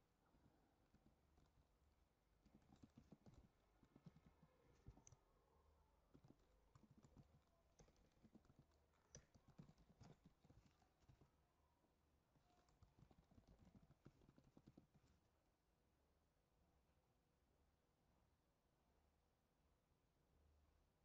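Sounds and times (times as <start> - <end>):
keyboard typing: 2.4 - 5.3, 6.0 - 11.4, 12.4 - 15.2.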